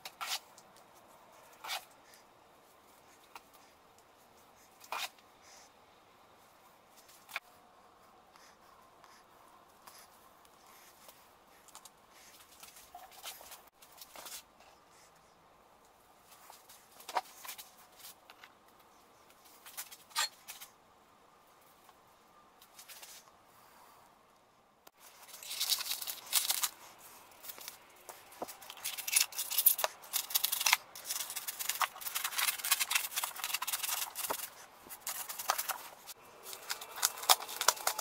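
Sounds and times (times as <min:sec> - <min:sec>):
polystyrene foam squeaking and crackling: 0:36.4 - 0:38.0.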